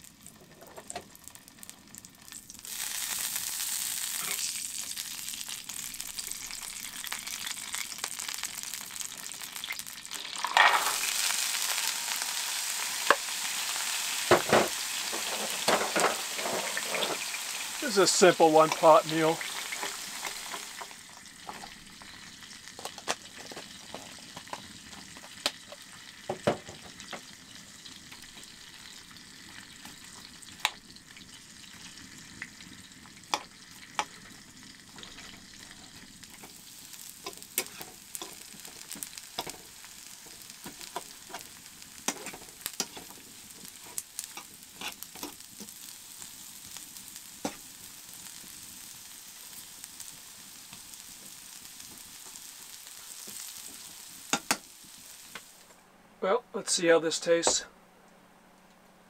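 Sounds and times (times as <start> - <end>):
food sizzling in a frying pan: 0.0 - 55.7
fork scraping a pan: 15.1 - 17.4, 37.2 - 38.6, 42.1 - 45.4.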